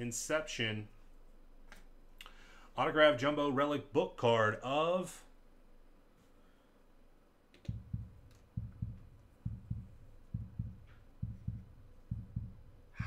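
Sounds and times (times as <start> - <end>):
heartbeat thumps: 7.7 - 13.0.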